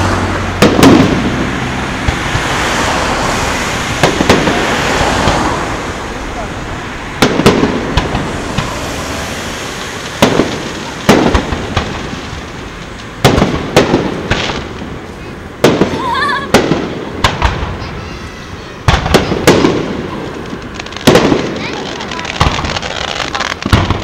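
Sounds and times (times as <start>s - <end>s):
firework shells booming: 0.0s - 24.0s.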